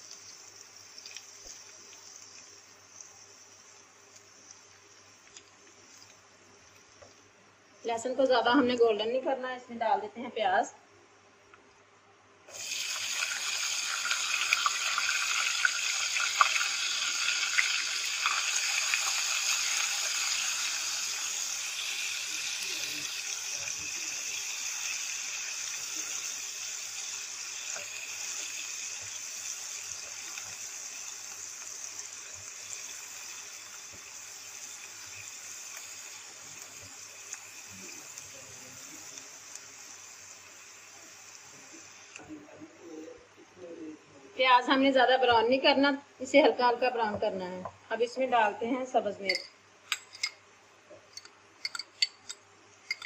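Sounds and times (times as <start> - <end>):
onions sizzling in hot oil: 0.0 - 7.2, 12.5 - 42.2.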